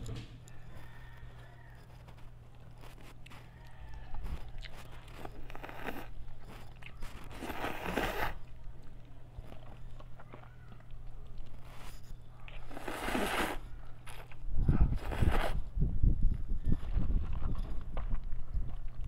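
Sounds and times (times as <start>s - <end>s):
chewing and wet mouth clicks: 0.4s - 14.5s, 16.3s - 19.0s
slurping noodles: 4.6s - 8.5s, 11.6s - 15.7s.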